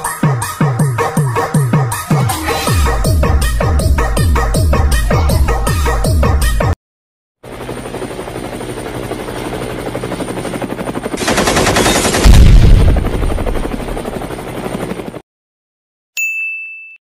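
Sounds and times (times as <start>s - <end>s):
heavy explosion boom: 12.2s - 13.2s.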